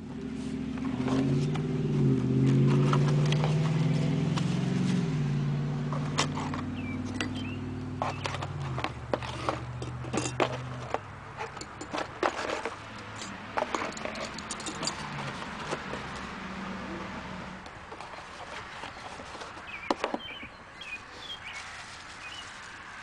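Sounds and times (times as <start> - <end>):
vehicle engine humming: 0.0 - 23.0
metal parts clinking and scraping: 5.9 - 16.3.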